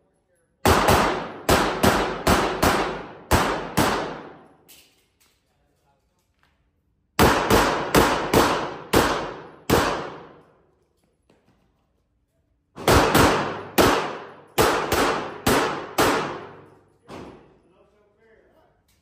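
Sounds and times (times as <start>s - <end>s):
handgun shots ringing indoors: 0.6s - 5.5s, 7.1s - 11.0s, 12.7s - 17.6s.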